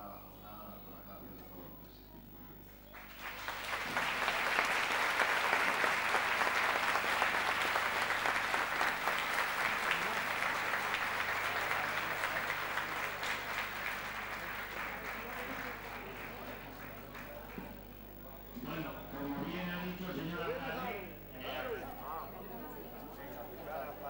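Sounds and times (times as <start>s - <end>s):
audience applauding: 2.9s - 18.1s.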